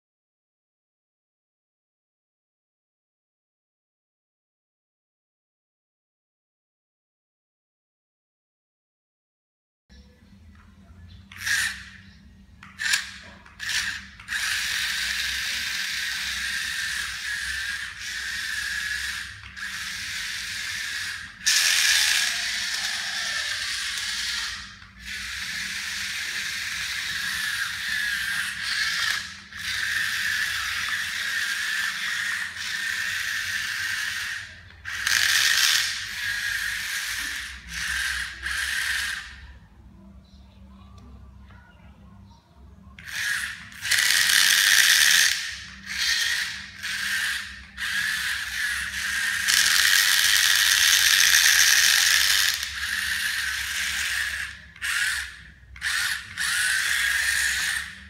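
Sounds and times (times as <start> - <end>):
small gear motors whirring: 11.3 - 12.0, 12.6 - 39.6, 43.0 - 58.0.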